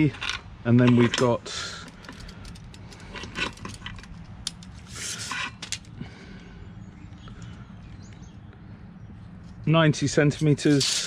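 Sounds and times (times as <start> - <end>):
tape measure clicks and rattles: 10.4 - 11.0
tape measure rasp: 10.6 - 11.0.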